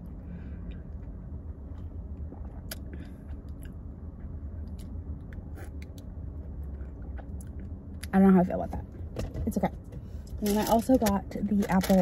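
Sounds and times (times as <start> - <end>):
steady low rumble: 0.0 - 12.0
swallowing sounds: 2.1 - 3.8.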